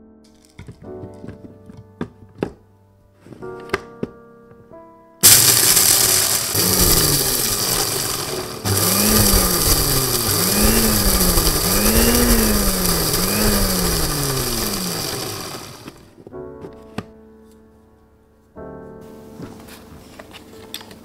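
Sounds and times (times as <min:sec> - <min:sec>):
mixer grinder grinding coffee beans: 0:05.2 - 0:16.1.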